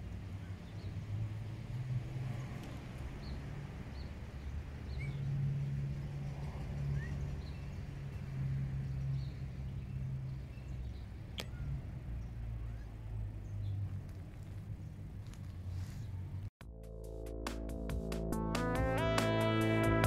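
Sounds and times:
high bird chirps: 4.9 - 5.3
low hum shifting in pitch: 16.7 - 20.0.

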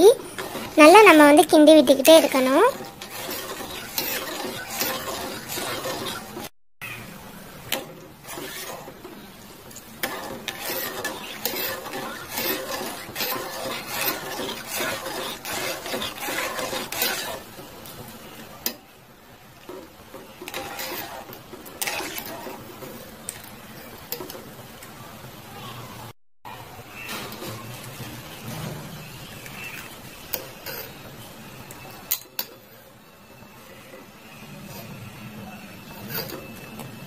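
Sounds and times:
metal spoon clinking and scraping pot: 2.1 - 6.5, 10.0 - 17.5, 20.4 - 22.6.

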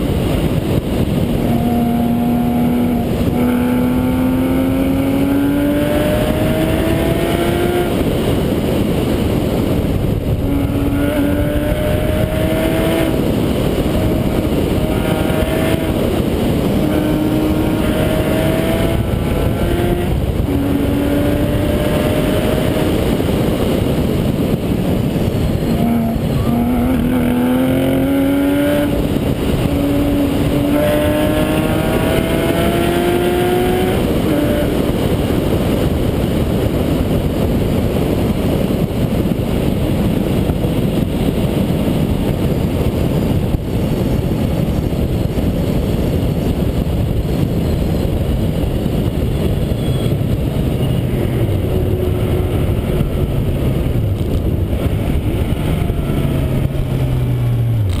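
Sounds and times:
rushing noise: 0.0 - 58.0
race car engine revving: 0.4 - 36.0.

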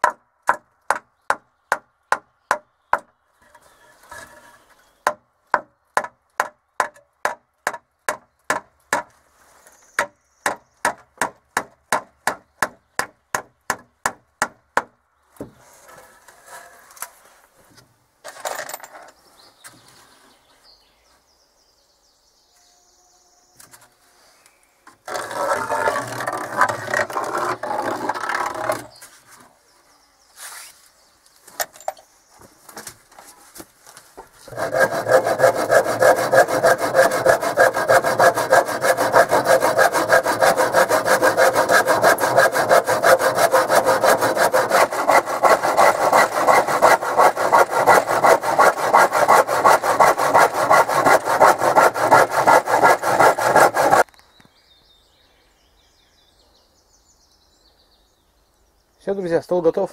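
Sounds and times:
hand saw cutting wood: 25.0 - 29.0, 34.4 - 54.1.

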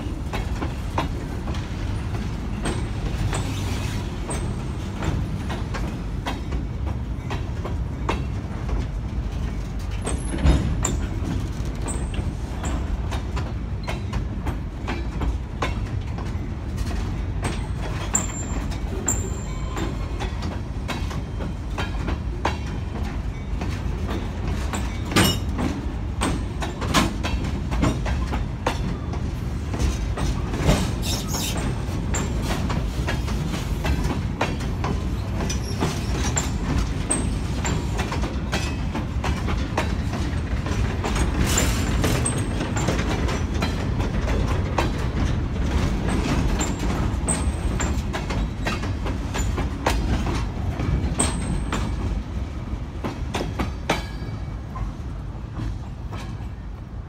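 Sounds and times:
wheels clicking over rail joints: 0.0 - 56.6
freight train rolling rumble: 0.0 - 57.0
brief high squeaks: 31.0 - 31.6.

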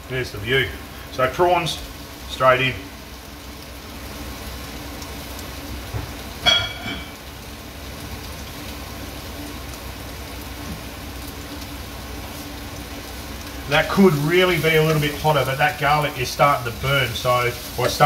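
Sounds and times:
prawns sizzling in frying pan: 0.0 - 18.0.

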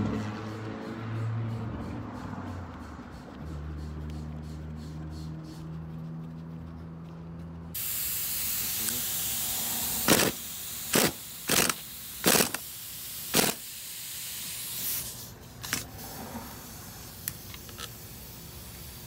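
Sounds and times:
impact wrench bursts: 7.8 - 19.0
steady hiss: 7.8 - 19.0.

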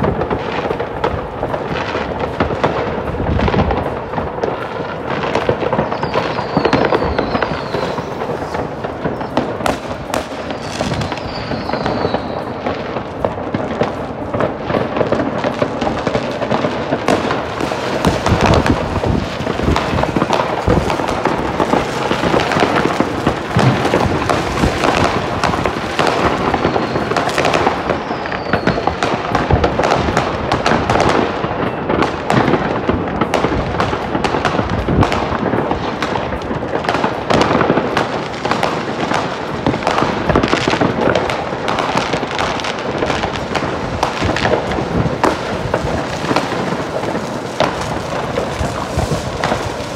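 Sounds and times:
fireworks bangs and pops: 0.0 - 49.9
firework whistles: 2.6 - 14.0, 15.2 - 33.3.

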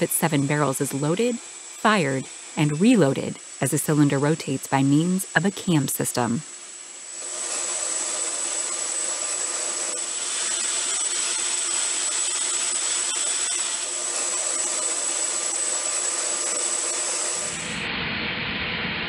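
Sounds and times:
high turbine whine: 0.0 - 19.0
hiss: 5.7 - 19.0.

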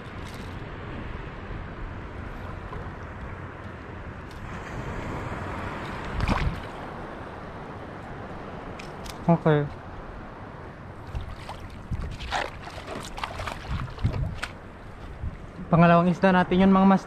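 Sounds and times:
wind noise on microphone: 0.0 - 7.0, 10.9 - 17.0
water lapping: 10.9 - 15.6.

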